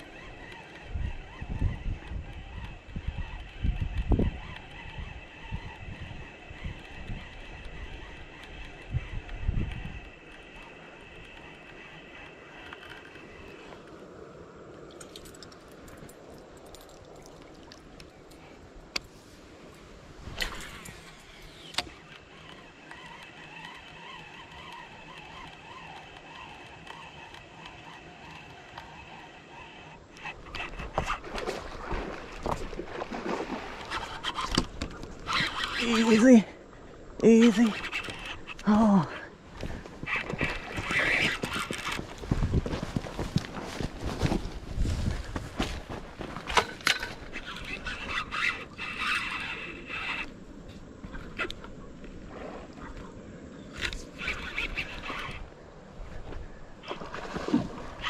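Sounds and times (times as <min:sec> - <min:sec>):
small reel click: 0:00.0 - 0:14.0, 0:20.4 - 0:30.8, 0:37.2 - 0:38.7
fishing reel gear whir: 0:00.0 - 0:19.1, 0:20.3 - 0:42.3, 0:46.4 - 0:53.0, 0:53.6 - 0:55.9, 0:56.6 - 0:58.0
knocks and scrapes of gear: 0:39.6 - 0:51.5.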